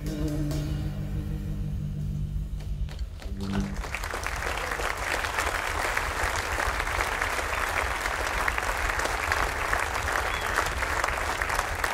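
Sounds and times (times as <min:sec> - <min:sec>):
low hum: 0:00.0 - 0:06.2
audience applauding: 0:02.9 - 0:11.9.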